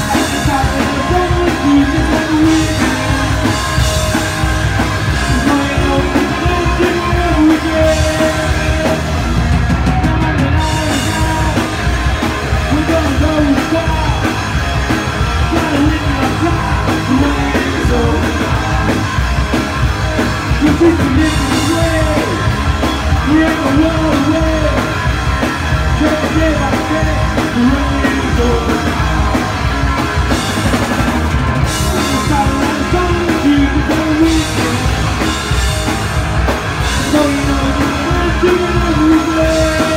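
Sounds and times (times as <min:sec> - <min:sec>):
male lead vocal: 0:00.0 - 0:31.0, 0:31.6 - 0:35.9, 0:36.8 - 0:39.9
drum kit: 0:00.0 - 0:39.9
electric bass: 0:00.0 - 0:39.9
electric guitar: 0:00.0 - 0:39.9.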